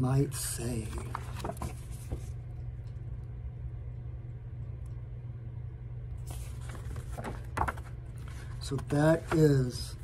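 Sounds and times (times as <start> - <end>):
low room hum: 0.0 - 10.0
paper rustling: 0.6 - 2.4, 6.2 - 10.0.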